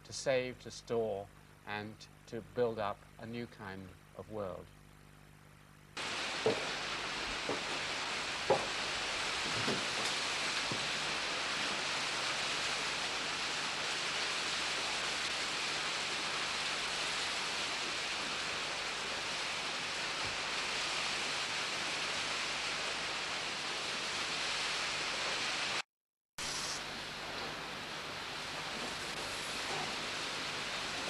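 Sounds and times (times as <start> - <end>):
steady hiss: 0.0 - 4.7, 5.6 - 25.8, 26.4 - 31.0.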